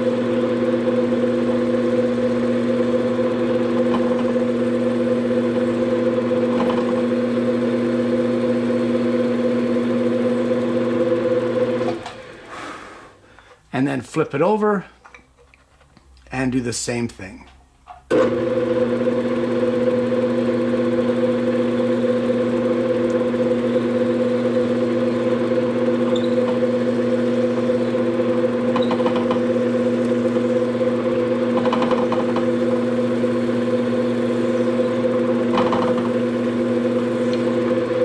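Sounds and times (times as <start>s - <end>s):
drill press motor humming: 0.0s - 12.5s, 18.1s - 38.0s
drill bit cutting wood: 23.5s - 37.8s.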